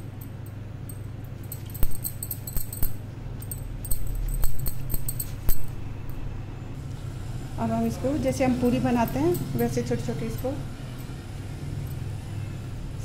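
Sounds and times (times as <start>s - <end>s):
bangles clinking: 0.0s - 6.3s, 9.0s - 12.1s
steady low hum: 0.0s - 13.0s.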